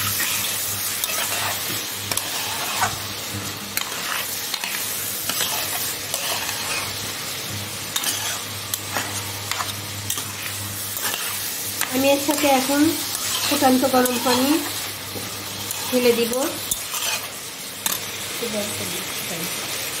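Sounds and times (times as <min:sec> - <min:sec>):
food sizzling in oil: 0:00.0 - 0:20.0
spatula scraping and knocking pan: 0:03.8 - 0:06.9, 0:08.0 - 0:17.3.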